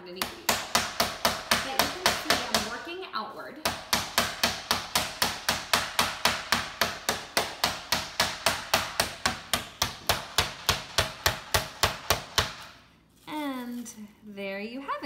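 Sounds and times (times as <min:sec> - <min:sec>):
meat mallet pounding chicken: 0:00.0 - 0:02.9, 0:03.6 - 0:12.7.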